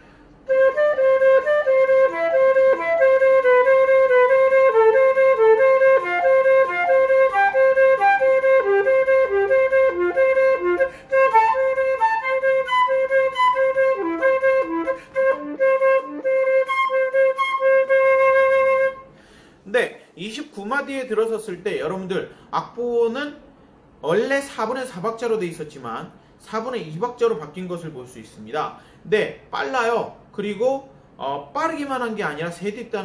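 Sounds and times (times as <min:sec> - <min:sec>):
flute player breathing: 0:00.0 - 0:00.5, 0:10.7 - 0:11.4, 0:14.7 - 0:15.4, 0:19.0 - 0:20.2, 0:28.8 - 0:29.1
flute playing fast runs: 0:00.5 - 0:19.0.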